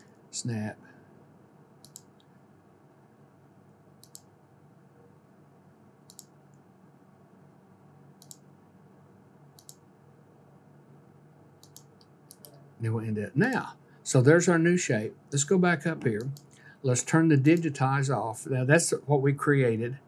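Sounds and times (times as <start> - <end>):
faint room hum: 0.0 - 20.0
computer mouse clicks: 1.8 - 2.3, 4.0 - 4.3, 6.1 - 6.6, 8.2 - 8.5, 9.6 - 9.8, 11.6 - 12.6, 16.1 - 16.6.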